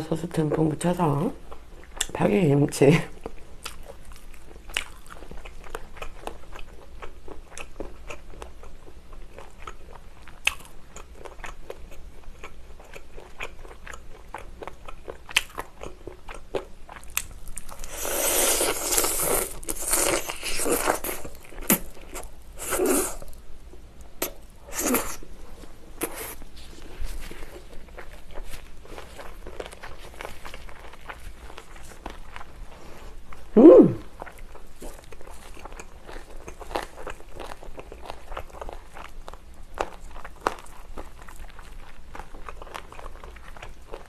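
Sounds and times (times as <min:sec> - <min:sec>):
person biting and crunching food: 0:15.3 - 0:23.4, 0:24.2 - 0:25.2, 0:26.0 - 0:26.5.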